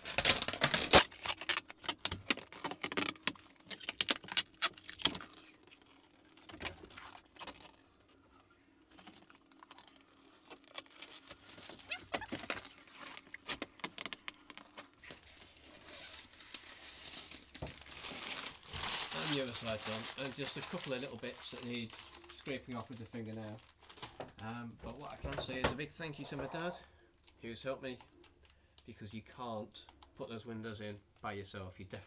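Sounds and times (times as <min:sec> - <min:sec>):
plastic film peeling and crackling: 0:00.0 - 0:25.2
loose film crinkling: 0:00.0 - 0:31.3.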